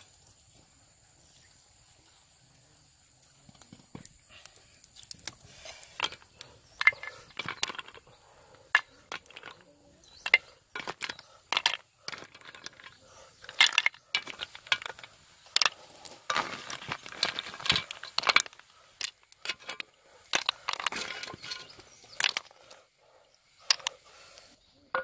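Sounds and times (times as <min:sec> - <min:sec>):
snail shells clinking on pottery: 0:05.9 - 0:22.7.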